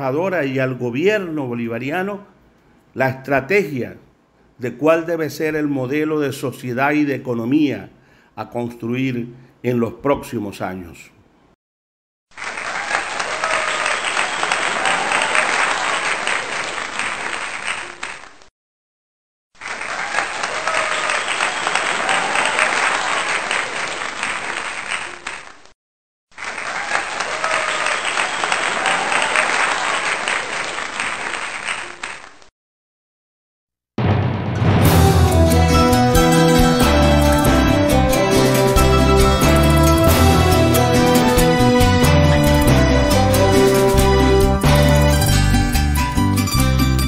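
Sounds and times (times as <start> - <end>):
crowd applauding: 12.3 - 18.4, 19.6 - 25.6, 26.4 - 32.4.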